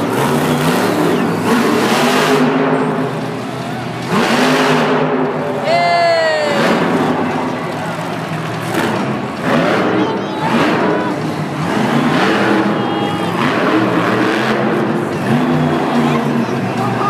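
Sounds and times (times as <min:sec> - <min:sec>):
monster truck engines revving: 0:00.0 - 0:17.0.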